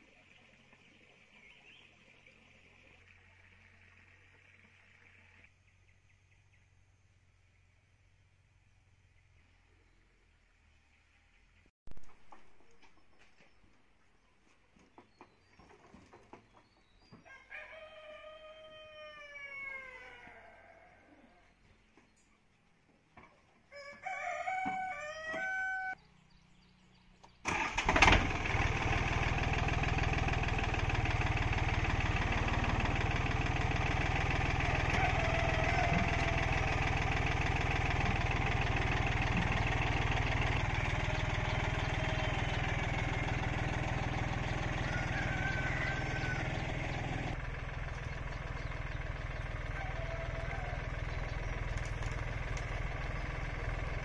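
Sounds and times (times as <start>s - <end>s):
rooster crowing: 17.2s - 21.4s, 23.7s - 26.0s, 34.4s - 36.9s, 41.6s - 47.4s, 49.5s - 51.3s
tractor diesel engine running: 26.9s - 54.0s.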